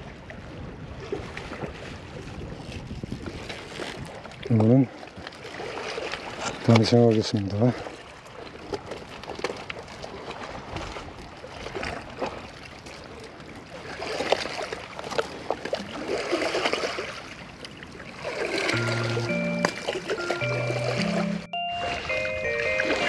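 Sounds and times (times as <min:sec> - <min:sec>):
small waves lapping on rocks: 0:00.0 - 0:18.8
music jingle: 0:18.7 - 0:23.0.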